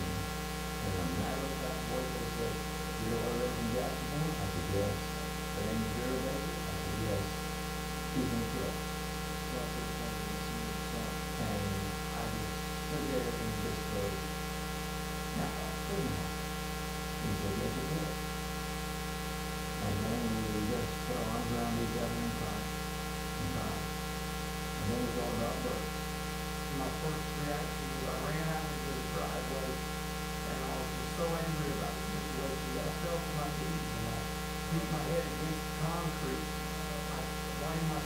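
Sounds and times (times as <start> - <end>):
faint indistinct voice: 0.0 - 7.3, 8.2 - 8.8, 9.5 - 14.2, 15.3 - 16.3, 17.2 - 18.2, 19.8 - 22.7, 23.4 - 23.8, 24.8 - 25.9, 26.7 - 29.8, 30.4 - 38.0
electrical mains hum: 0.0 - 38.0.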